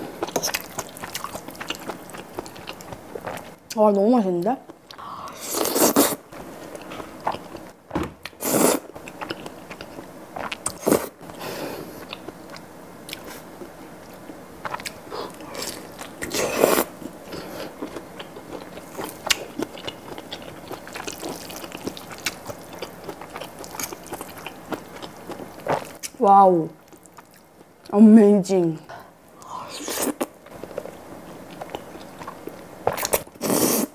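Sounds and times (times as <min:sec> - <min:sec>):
slurping noodles: 0:05.4 - 0:06.2, 0:33.0 - 0:33.9
biting and chewing sausage: 0:12.0 - 0:26.2.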